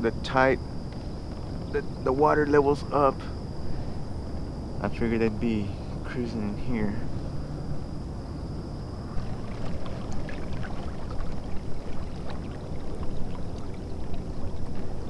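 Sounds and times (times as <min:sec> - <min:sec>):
small clicks and knocks from boat: 0:00.9 - 0:01.8, 0:09.6 - 0:15.0
water splashing against kayak hull: 0:09.1 - 0:15.0.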